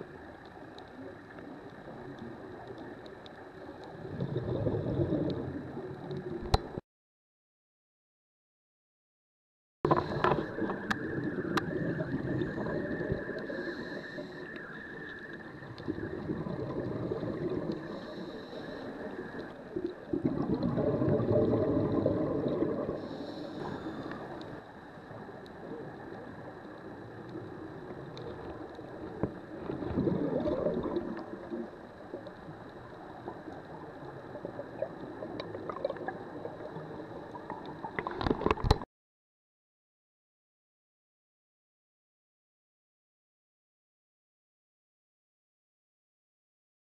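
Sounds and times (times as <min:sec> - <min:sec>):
gurgling exhaust bubbles: 0:04.0 - 0:06.1, 0:09.9 - 0:13.8, 0:15.5 - 0:18.2, 0:19.7 - 0:23.2, 0:29.1 - 0:31.7
scuba breathing through regulator: 0:13.4 - 0:15.2, 0:17.8 - 0:19.4, 0:22.9 - 0:24.4.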